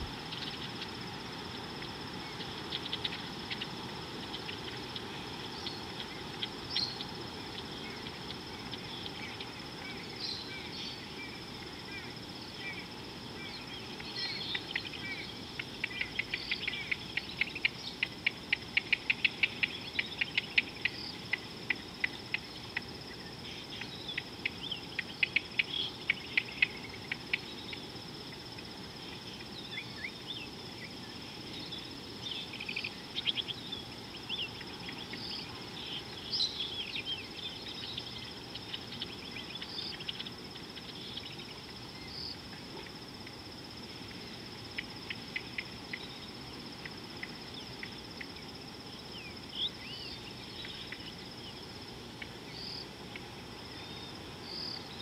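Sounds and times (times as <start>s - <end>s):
insects trilling: 0.0s - 55.0s.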